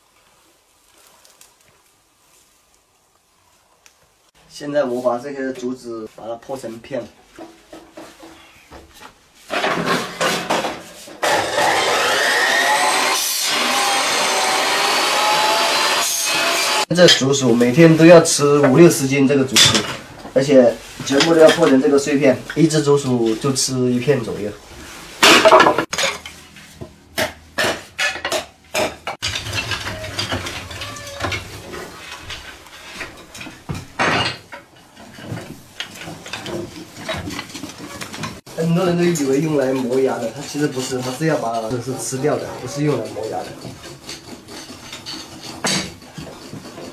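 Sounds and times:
loud knocks and scrapes: 0:07.3 - 0:16.8, 0:25.2 - 0:46.9
cut-off saw cutting bamboo: 0:11.2 - 0:16.9, 0:36.0 - 0:46.9
bamboo strips clattering: 0:27.9 - 0:46.9.

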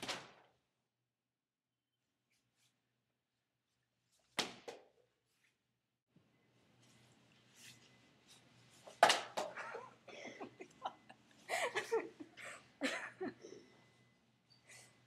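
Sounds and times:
giggling: 0:09.5 - 0:13.8.

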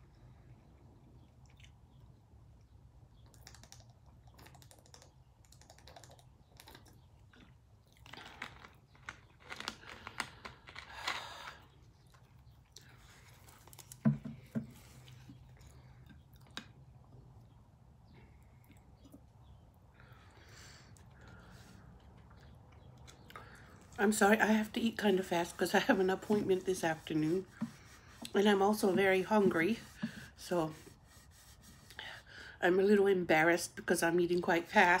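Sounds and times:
soft chewing: 0:00.0 - 0:24.0
plastic bottle crackling: 0:08.1 - 0:11.6.

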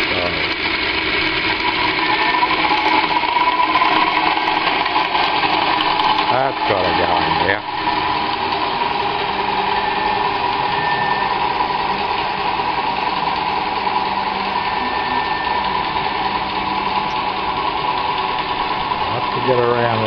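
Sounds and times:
small steam engine and gearing running: 0:00.0 - 0:20.0
faint high whine: 0:05.8 - 0:20.0.

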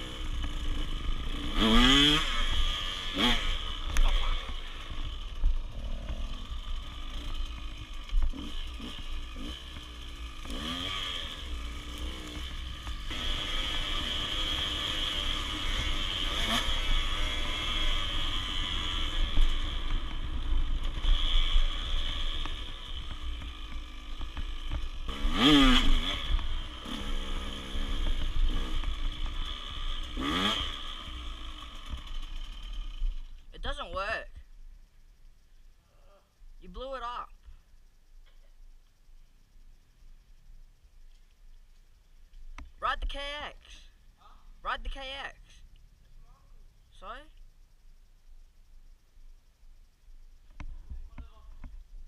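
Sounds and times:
dirt bike engine revving: 0:00.0 - 0:34.2.

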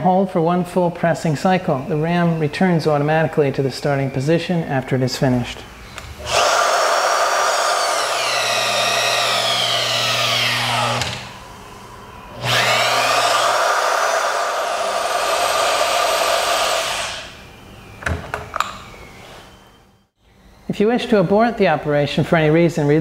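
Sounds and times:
electric motor whining: 0:05.9 - 0:19.8.

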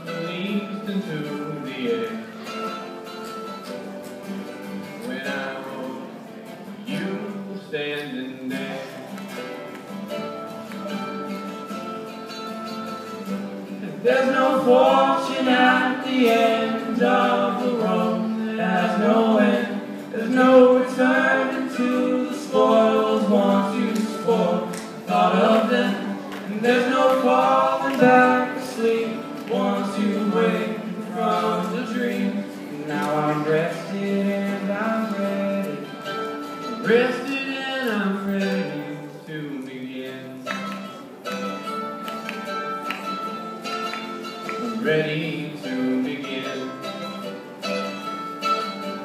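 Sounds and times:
man singing: 0:00.0 - 0:02.6, 0:04.9 - 0:09.4, 0:13.8 - 0:40.7, 0:44.5 - 0:47.1
acoustic guitar: 0:00.0 - 0:49.0.

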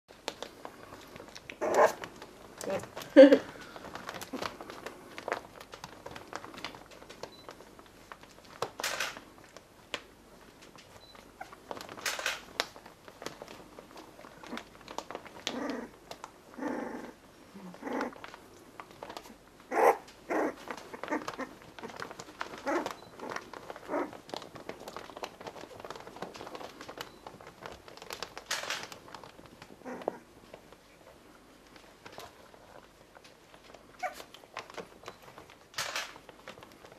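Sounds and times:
scuffling noises: 0:00.1 - 0:36.9
puppies whimpering and squeaking: 0:11.4 - 0:11.6, 0:19.7 - 0:24.2, 0:34.0 - 0:34.3.

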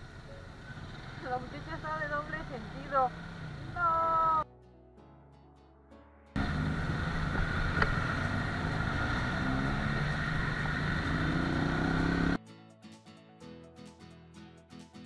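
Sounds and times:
motorcycle engine running: 0:00.0 - 0:04.4, 0:06.4 - 0:12.4.

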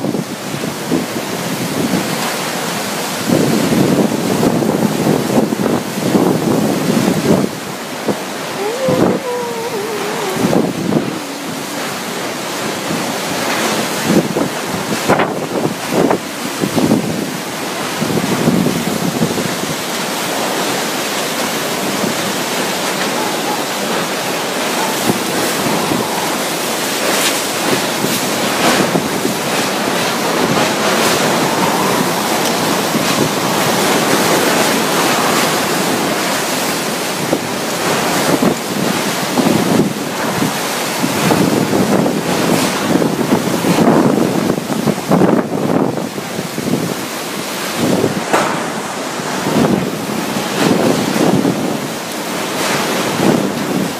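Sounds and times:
driving rain: 0:00.0 - 0:53.9
strong wind: 0:00.0 - 0:53.9
wind buffeting microphone: 0:00.0 - 0:53.9.

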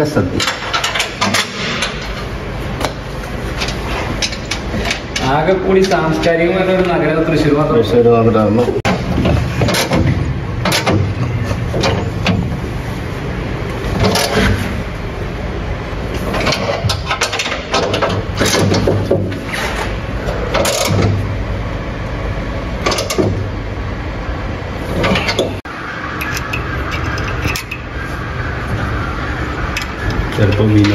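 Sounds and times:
sharp knocks and clanks: 0:00.0 - 0:06.2, 0:08.8 - 0:12.6, 0:13.9 - 0:14.7, 0:16.1 - 0:21.3, 0:22.8 - 0:23.6, 0:25.0 - 0:28.0
low mechanical hum: 0:00.0 - 0:30.9.

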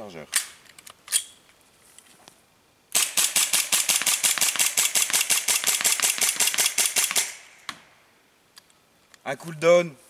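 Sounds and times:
airsoft pistol firing rapidly: 0:03.0 - 0:07.4.

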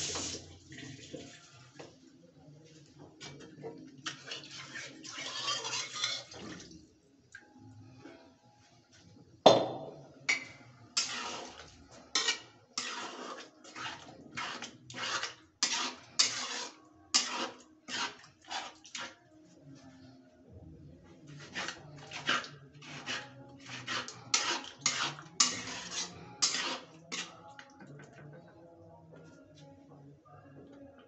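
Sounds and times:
ladle scraping a pot: 0:04.1 - 0:06.5, 0:10.3 - 0:19.2, 0:21.3 - 0:27.6.

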